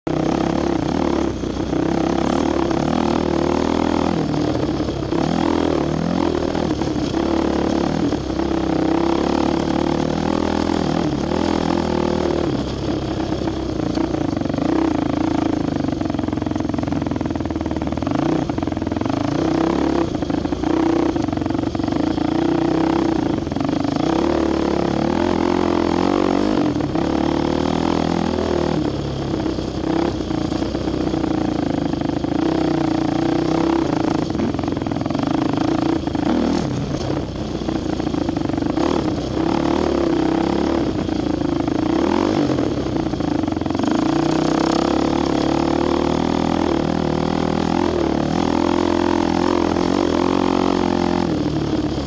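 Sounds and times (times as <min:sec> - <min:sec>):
dirt bike engine: 0:00.1 - 0:52.0.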